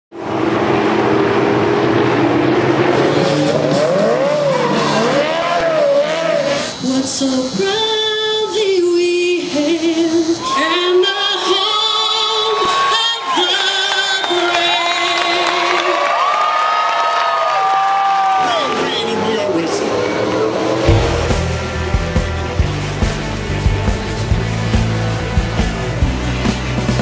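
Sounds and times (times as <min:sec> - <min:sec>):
race car engine: 0:00.1 - 0:07.6, 0:18.5 - 0:26.8
tires squealing: 0:00.2 - 0:06.9
held pitched notes: 0:20.8 - 0:22.9.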